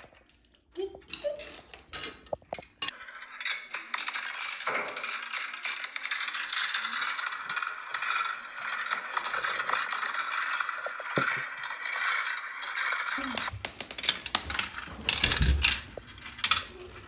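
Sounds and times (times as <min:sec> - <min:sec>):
plastic track pieces clicking: 0:00.3 - 0:17.0
continuous dense rattle: 0:02.8 - 0:17.0.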